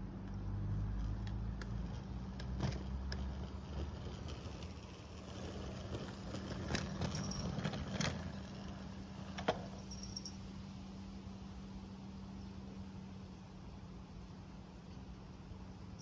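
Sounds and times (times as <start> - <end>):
wheels clicking over rails: 0.0 - 10.4
model train motor hum: 0.7 - 9.8.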